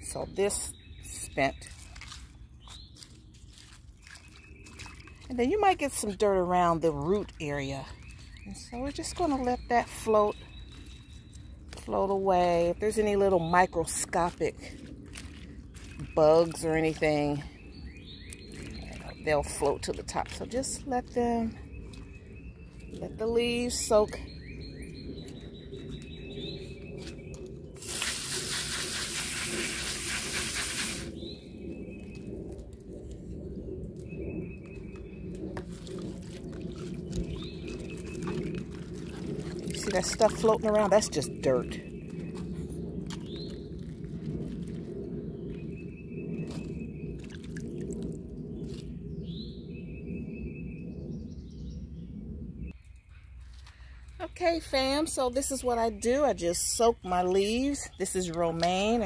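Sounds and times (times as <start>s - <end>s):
lettuce splashing in water tub: 1.3s - 17.4s, 35.5s - 41.9s, 47.2s - 48.8s
low outdoor rumble: 4.9s - 59.0s
hose nozzle spraying water: 27.8s - 31.1s
water splashing into water: 35.6s - 41.3s.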